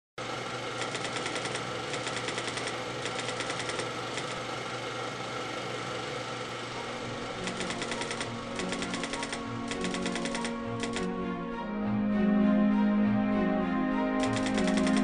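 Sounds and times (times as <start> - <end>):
mechanical whirr: 0.2 - 11.1, 14.2 - 15.0
typewriter keys clicking: 0.8 - 4.4, 7.4 - 11.1, 14.2 - 15.0.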